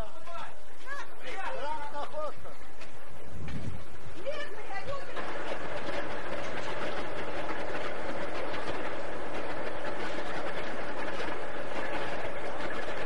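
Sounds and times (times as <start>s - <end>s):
diesel engine drone: 5.0s - 13.0s.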